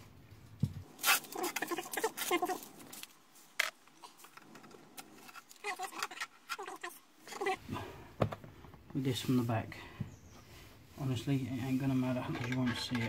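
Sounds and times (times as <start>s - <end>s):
masking tape ripping off plastic: 1.0s - 3.1s
plastic squeaks and rustles: 1.0s - 7.6s.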